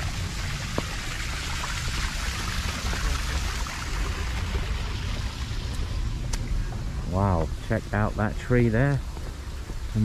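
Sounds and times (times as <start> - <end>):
water splashing over rocks: 0.0 - 6.5.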